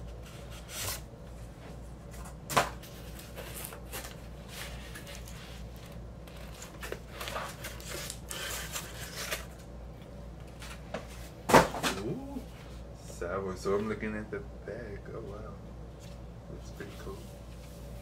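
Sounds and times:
cardboard and plastic rustling: 0:02.0 - 0:09.7.

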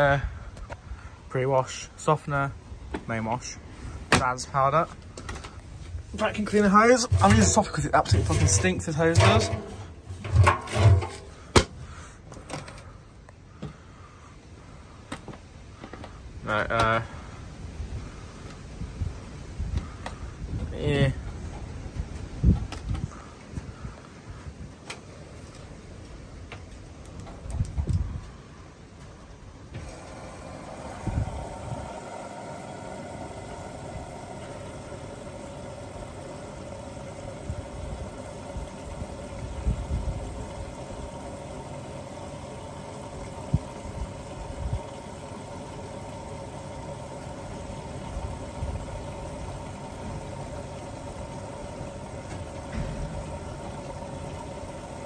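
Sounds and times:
water rushing into washing machine: 0:06.1 - 0:11.8, 0:29.7 - 0:55.0.

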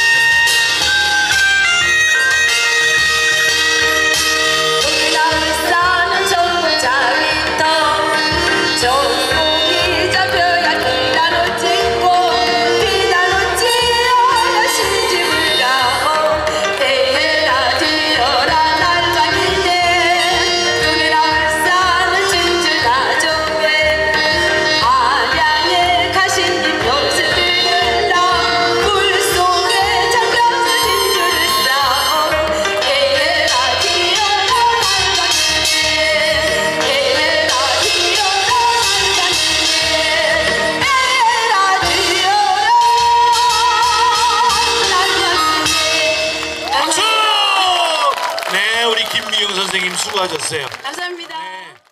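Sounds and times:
backing track with steady beat: 0:00.0 - 0:47.4
woman singing with vibrato: 0:02.8 - 0:47.4.

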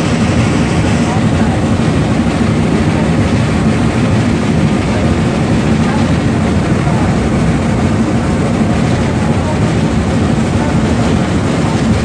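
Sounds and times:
steam locomotive running: 0:00.0 - 0:12.0.

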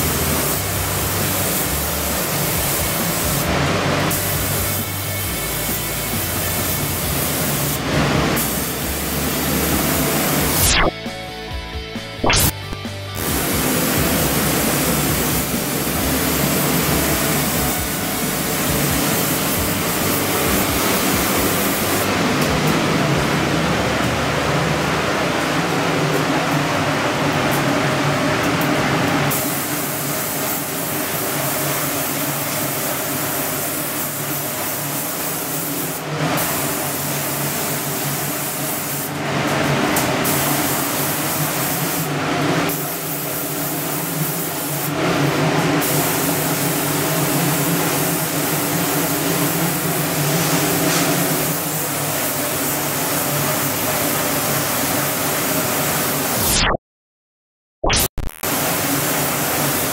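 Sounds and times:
spray gun hissing: 0:00.0 - 0:10.9, 0:13.2 - 0:22.3, 0:29.3 - 0:39.2, 0:40.2 - 0:56.4, 0:58.5 - 0:59.9.

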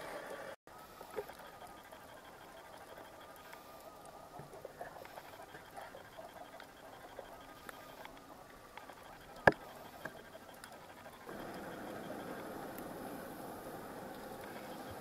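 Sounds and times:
underwater clicks and crackle: 0:01.0 - 0:15.0
steady hiss: 0:11.2 - 0:15.0.

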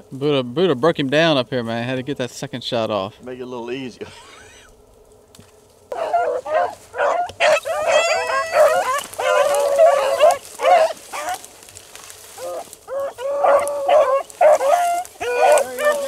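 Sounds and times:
hounds barking and howling: 0:05.9 - 0:16.0.

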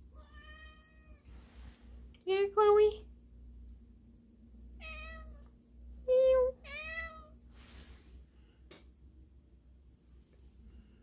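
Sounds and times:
cat meowing: 0:00.1 - 0:01.2, 0:04.8 - 0:05.5, 0:06.6 - 0:07.3.

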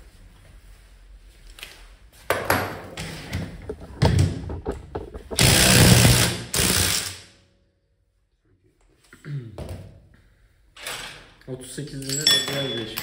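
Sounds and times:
power tool bursts: 0:05.4 - 0:07.3.

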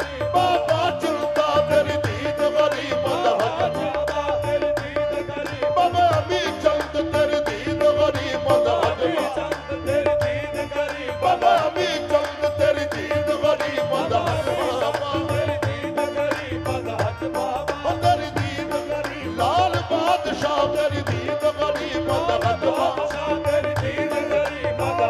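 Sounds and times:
harmonium melody: 0:00.0 - 0:25.0
steady drum beat: 0:00.0 - 0:25.0.

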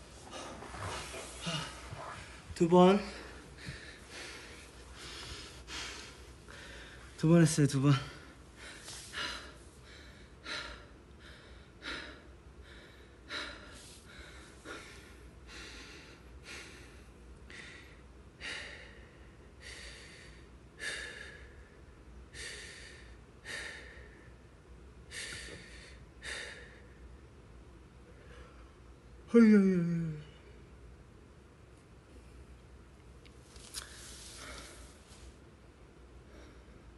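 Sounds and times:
man breathing hard: 0:00.2 - 0:07.2, 0:07.9 - 0:27.1.

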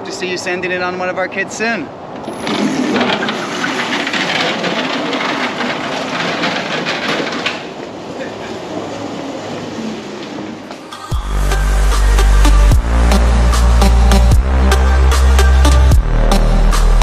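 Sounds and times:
small wheels rattling over asphalt: 0:02.2 - 0:10.7.

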